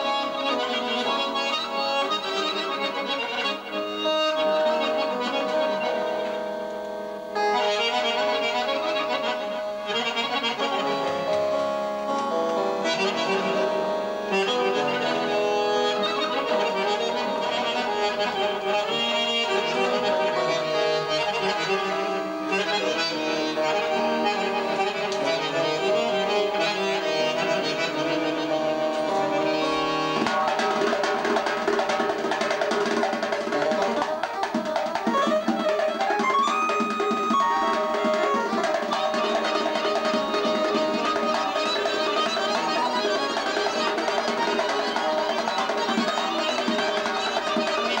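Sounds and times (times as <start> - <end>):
accordion folk melody: 0.0 - 48.0
hand drum beating: 30.2 - 48.0.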